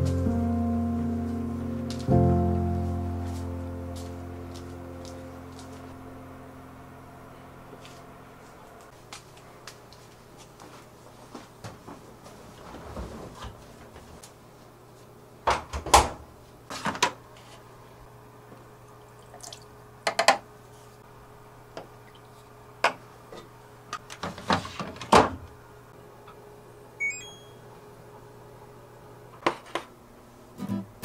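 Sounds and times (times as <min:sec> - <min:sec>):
washing machine knocks and clunks: 0:15.5 - 0:16.2, 0:24.2 - 0:25.5
short electronic beep: 0:27.0 - 0:27.6.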